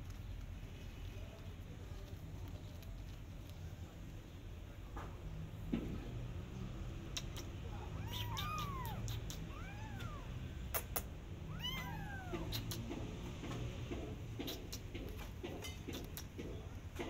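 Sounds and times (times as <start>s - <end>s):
kittens meowing: 7.2s - 12.9s.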